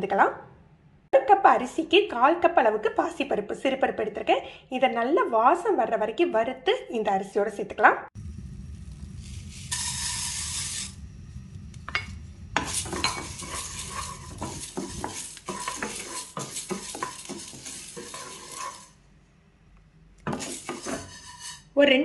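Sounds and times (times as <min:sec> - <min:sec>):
dry lentils poured into pan: 0:08.8 - 0:11.0, 0:12.6 - 0:18.9
wooden spatula stirring lentils: 0:09.2 - 0:10.9, 0:12.6 - 0:19.0, 0:20.3 - 0:21.7.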